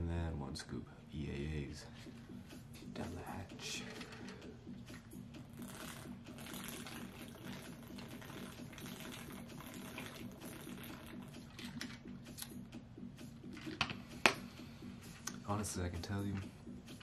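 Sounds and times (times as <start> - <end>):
person gulping a drink: 5.6 - 11.3.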